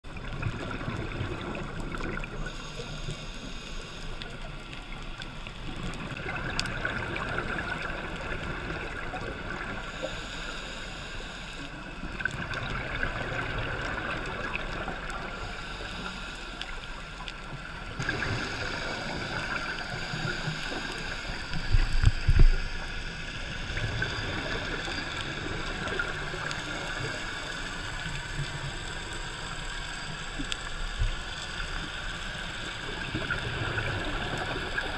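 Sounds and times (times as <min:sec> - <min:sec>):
diver's exhaled bubbles gurgling: 0:00.1 - 0:02.6, 0:04.4 - 0:10.0, 0:12.0 - 0:15.5, 0:17.5 - 0:29.5, 0:32.7 - 0:34.9
muffled underwater hiss: 0:00.1 - 0:34.9.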